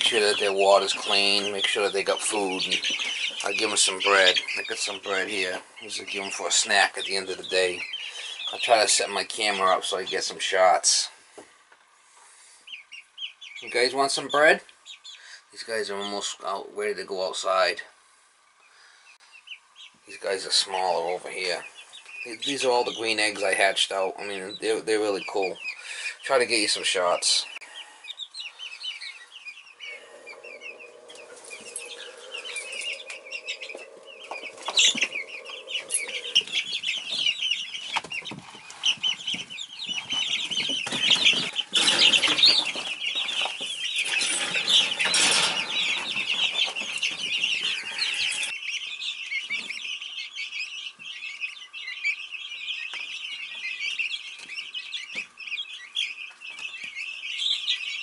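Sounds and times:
chicks peeping: 0.0s - 58.0s.

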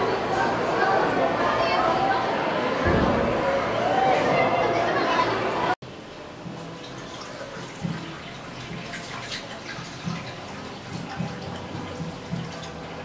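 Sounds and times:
water splashing and dripping: 6.3s - 13.0s
water running from a tap: 6.4s - 13.0s.

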